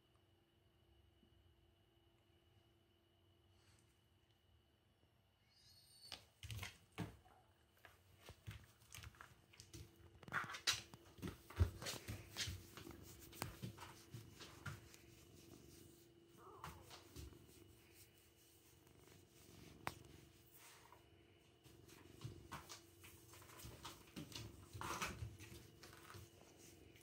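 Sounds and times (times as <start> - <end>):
phone rubbing against fur: 11.7 - 16.1, 16.7 - 20.8.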